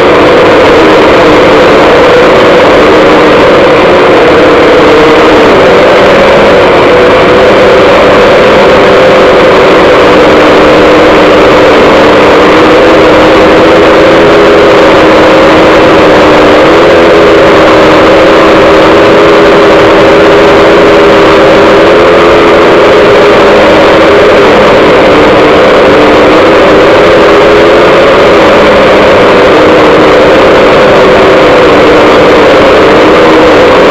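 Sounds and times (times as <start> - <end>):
drone motors humming: 0.0 - 33.9
rushing propeller noise: 0.0 - 33.9.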